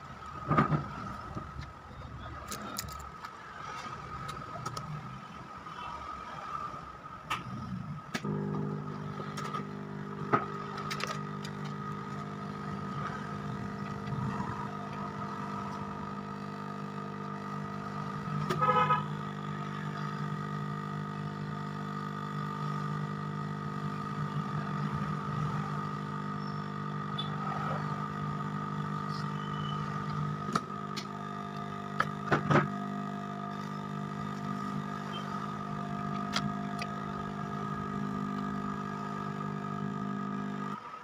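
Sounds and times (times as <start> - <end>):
hot air gun blower whining: 8.2 - 40.8
brief louder tone: 29.3 - 30.0.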